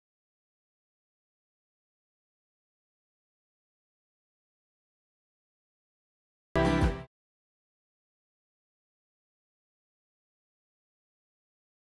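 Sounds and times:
musical jingle chord: 6.6s - 7.1s.

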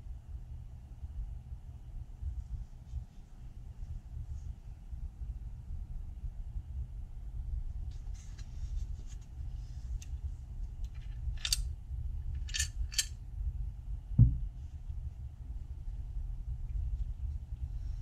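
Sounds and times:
steady low hum: 0.0s - 18.0s
dull thump: 14.2s - 14.5s.

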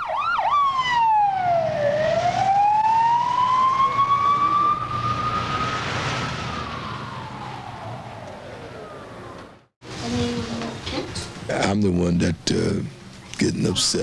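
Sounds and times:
ambulance siren wailing: 0.0s - 9.7s
low road rumble: 0.0s - 11.4s.

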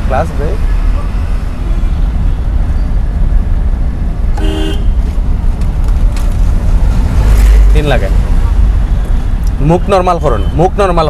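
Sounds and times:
car engine low rumble: 0.0s - 11.0s
road noise inside car: 0.0s - 11.0s
vehicle horn toot: 4.4s - 5.0s.

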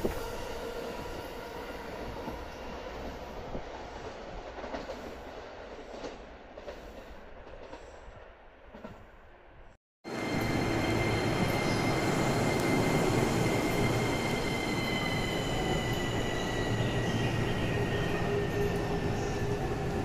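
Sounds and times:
electric train pulling out: 10.1s - 20.0s.

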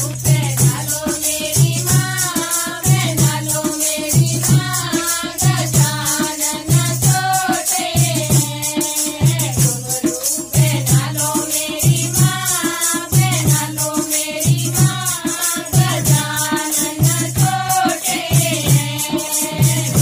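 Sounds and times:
group of women singing: 0.0s - 20.0s
jingling hand percussion: 0.0s - 20.0s.

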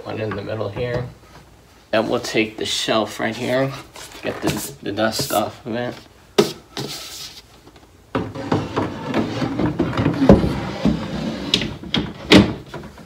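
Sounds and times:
shelf scraping cabinet sides: 3.4s - 5.5s, 8.2s - 13.0s.

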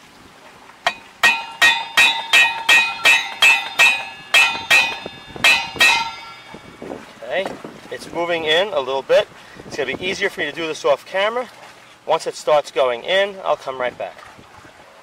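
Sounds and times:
hammer tapping on steel: 0.8s - 6.6s.

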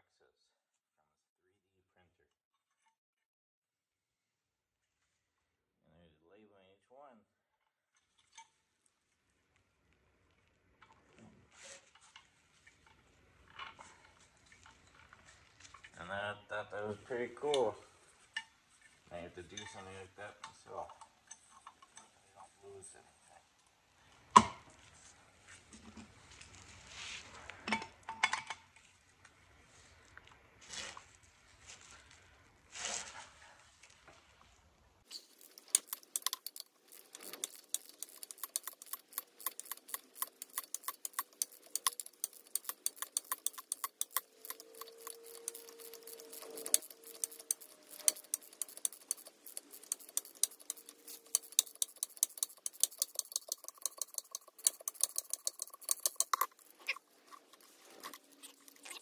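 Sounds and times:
rapid light metallic clicking: 35.1s - 59.0s.

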